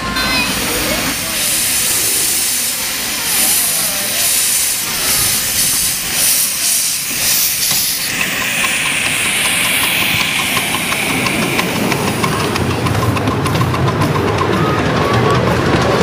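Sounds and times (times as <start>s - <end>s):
steam locomotive hissing: 0.0s - 16.0s
fast light ticking: 4.2s - 14.5s.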